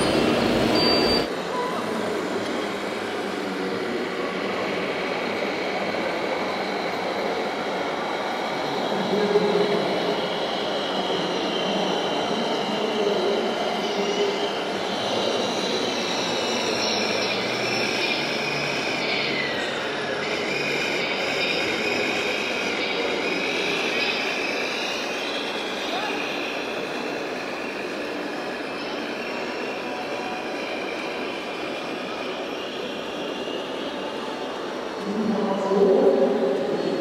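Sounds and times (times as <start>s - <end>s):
small electric motors whining: 13.9s - 31.6s.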